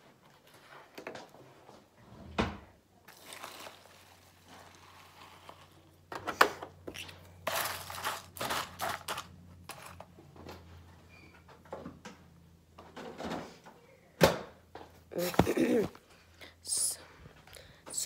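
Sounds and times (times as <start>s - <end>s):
spoon stirring cereal in bowl: 3.1s - 6.1s, 7.4s - 10.1s.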